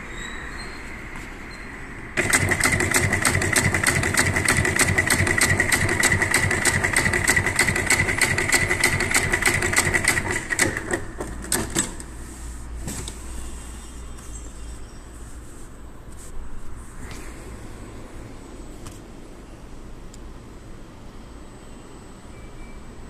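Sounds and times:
sewing machine stitching: 2.2 - 12.0.

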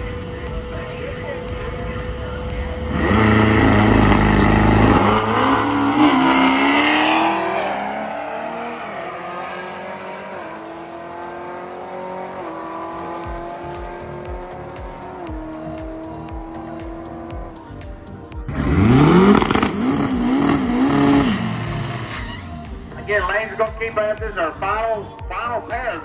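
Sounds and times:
drag race car engine launching: 18.5 - 22.7.

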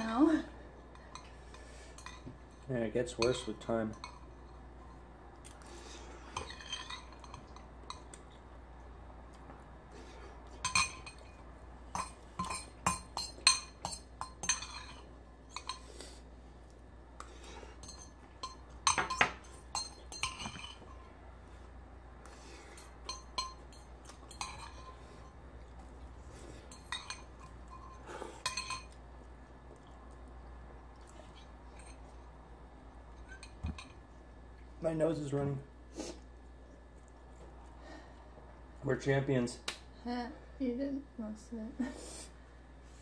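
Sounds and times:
spoon clinking against ceramic bowl: 2.0 - 4.6, 10.6 - 15.8, 17.8 - 21.0, 22.8 - 25.0, 26.7 - 29.0.

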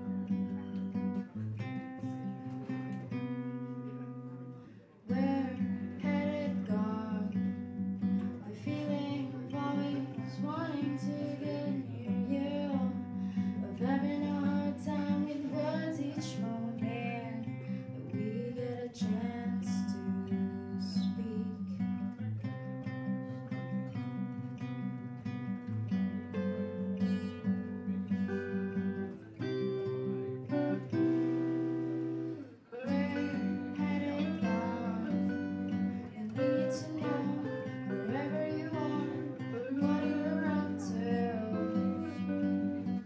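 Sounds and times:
acoustic guitars strumming: 0.0 - 43.0
woman singing: 5.0 - 22.1, 32.7 - 43.0.

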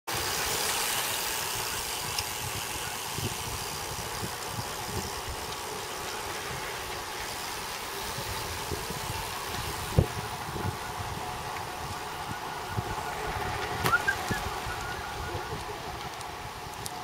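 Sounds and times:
tyres on asphalt: 0.1 - 17.0
wind rushing over microphone: 1.6 - 5.5, 6.2 - 17.0.

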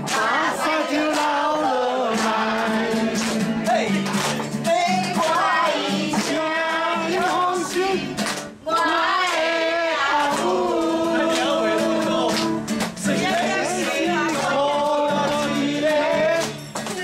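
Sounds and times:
strummed acoustic guitar: 0.0 - 17.0
person singing: 8.8 - 17.0.

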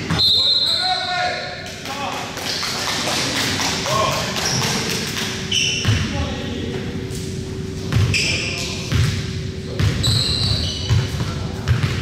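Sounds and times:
basketball dribbling on gym floor: 7.9 - 8.2, 8.9 - 12.0.

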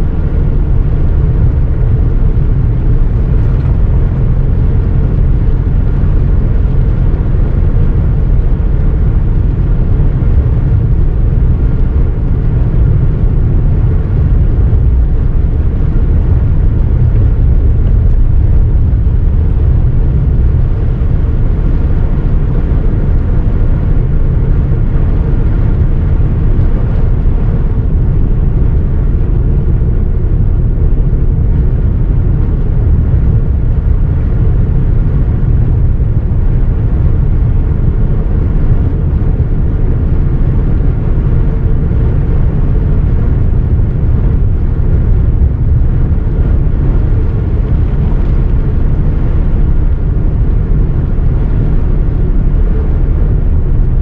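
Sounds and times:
car road and wind drone: 0.0 - 54.0.

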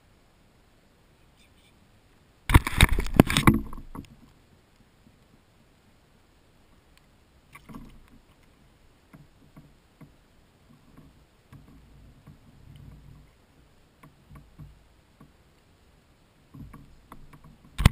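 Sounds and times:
faint knocks and clicks on kayak: 7.5 - 13.4, 14.0 - 15.7, 16.5 - 17.9.

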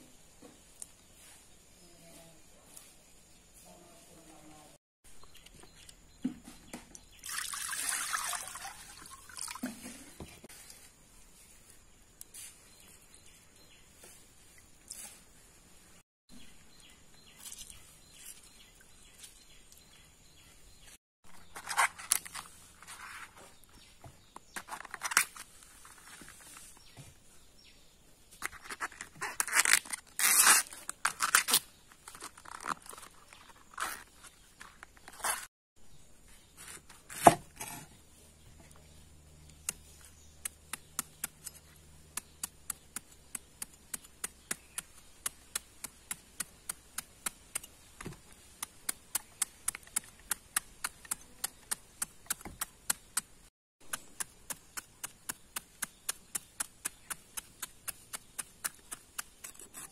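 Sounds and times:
bracts tearing and snapping: 28.4 - 34.2.

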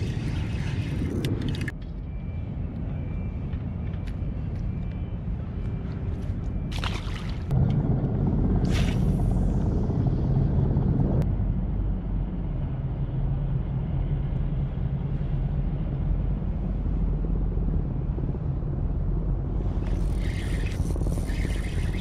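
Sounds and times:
fishing reel rattling: 19.8 - 22.0.

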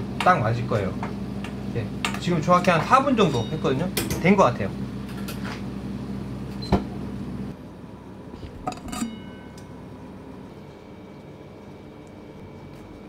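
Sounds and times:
steady low hum: 0.0 - 13.0
metallic cookware clinks: 8.7 - 9.7.

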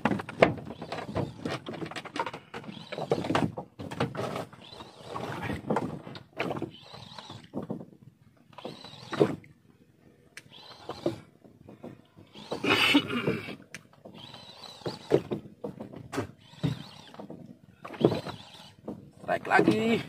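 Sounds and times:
faint clicks: 10.3 - 10.6.

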